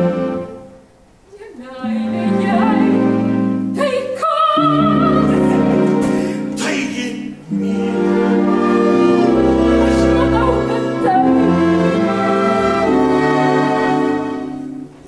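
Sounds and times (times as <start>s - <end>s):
orchestra playing chords: 0.0s - 0.8s, 1.8s - 3.8s, 4.6s - 15.0s
person singing with vibrato: 1.4s - 14.7s.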